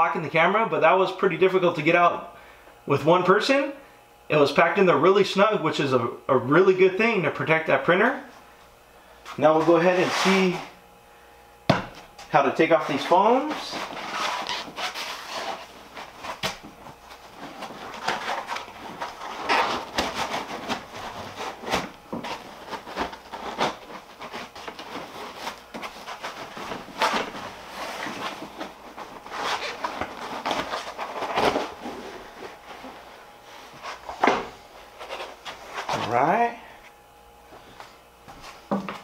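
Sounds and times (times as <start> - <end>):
sharp knocks: 11.7 - 12.0
foam blocks squeaking and scraping: 13.1 - 16.5, 17.5 - 31.8.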